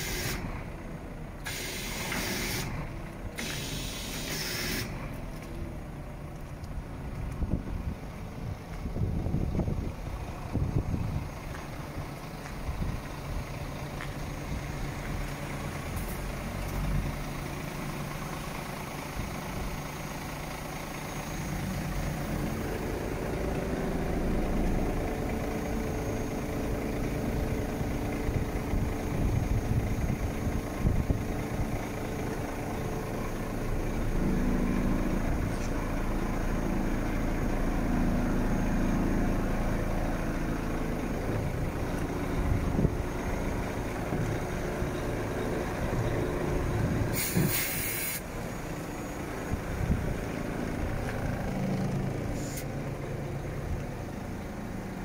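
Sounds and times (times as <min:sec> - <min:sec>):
hydraulics steady tone: 0:00.0 - 0:05.5
truck diesel engine running: 0:00.0 - 0:55.0.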